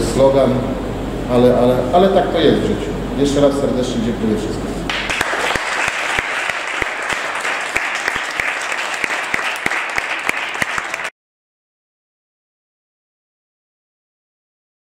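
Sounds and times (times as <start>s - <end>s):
people applauding: 4.9s - 11.1s.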